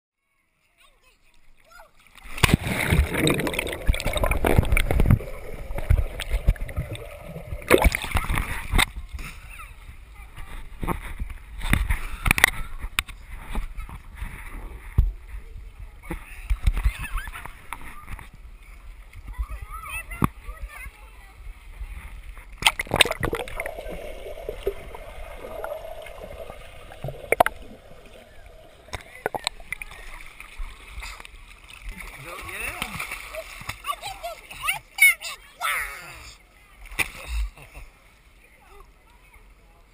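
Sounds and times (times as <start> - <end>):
water sloshing and gurgling: 1.3 - 35.0
muffled underwater gurgling: 2.8 - 8.6, 22.8 - 30.2.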